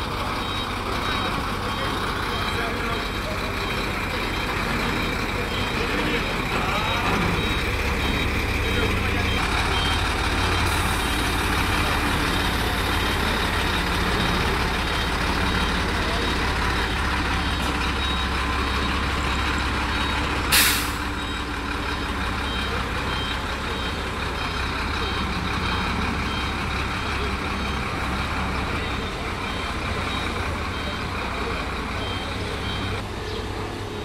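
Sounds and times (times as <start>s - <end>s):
diesel truck engine idling: 0.0s - 34.0s
reversing alarm beeping: 0.3s - 33.0s
air brakes hissing: 20.3s - 21.2s.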